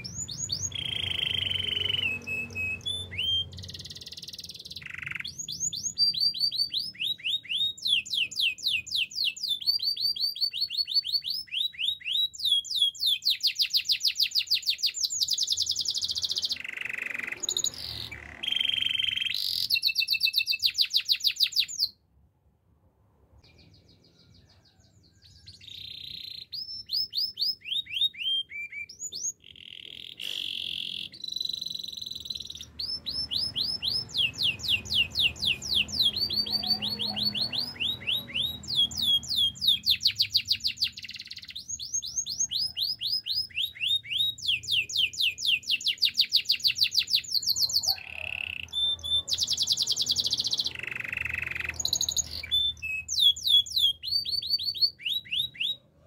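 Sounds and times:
canary singing trills: 0.0s - 22.0s, 23.4s - 56.0s.

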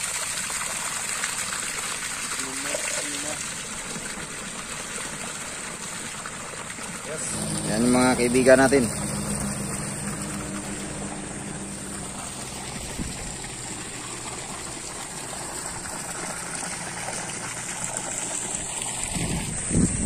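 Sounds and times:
water rushing from pump outlet: 0.0s - 20.0s
low steady hum: 7.2s - 19.1s.

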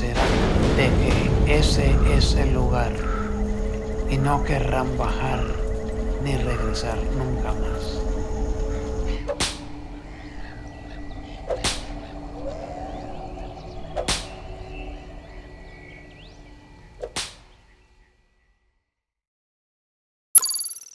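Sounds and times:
thin high tone: 20.4s - 20.9s.

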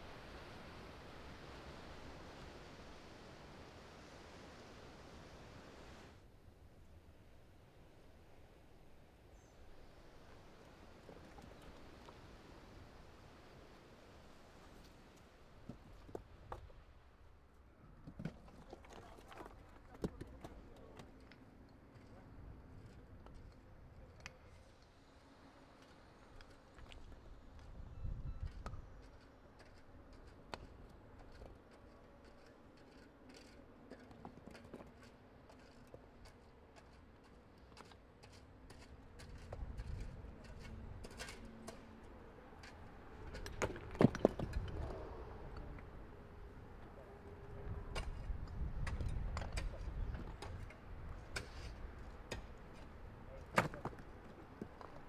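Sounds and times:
low background hiss: 0.0s - 17.8s.

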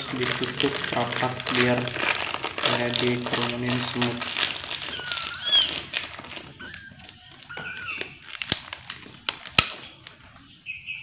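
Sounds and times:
kittens mewing: 4.4s - 8.8s.

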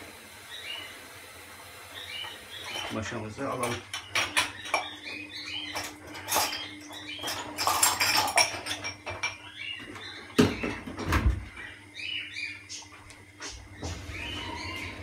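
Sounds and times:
metal utensils clattering: 2.7s - 5.0s, 5.6s - 9.5s.

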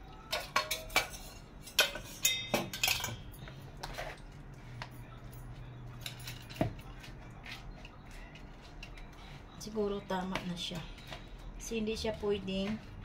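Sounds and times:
metal whisk clinking on steel bowl: 0.3s - 3.2s.

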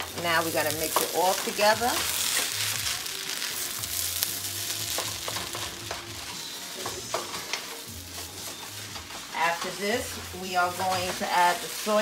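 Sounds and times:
rice sizzling in a wok: 0.0s - 12.0s
wooden spatula scraping: 0.1s - 12.0s
spatula tapping pan: 4.9s - 9.7s.

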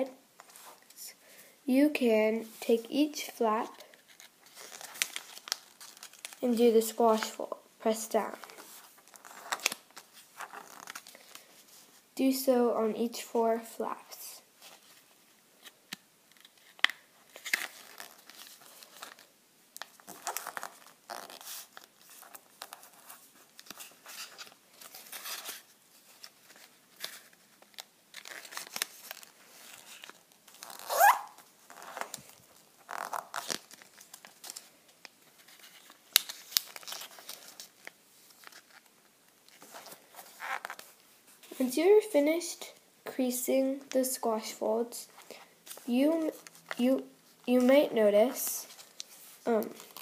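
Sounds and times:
paper rustling and crinkling: 3.8s - 7.4s, 8.2s - 12.0s, 14.6s - 41.6s, 48.6s - 50.0s.

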